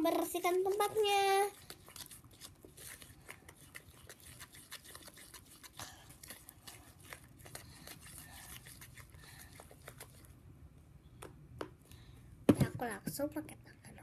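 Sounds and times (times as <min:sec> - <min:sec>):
spoon stirring sticky slime: 0:00.0 - 0:10.4.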